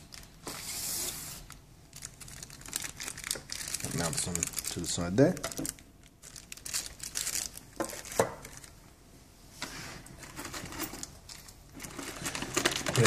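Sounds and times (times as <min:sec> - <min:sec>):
plastic packaging crinkling: 0:00.0 - 0:00.7, 0:01.4 - 0:08.9, 0:10.4 - 0:13.0.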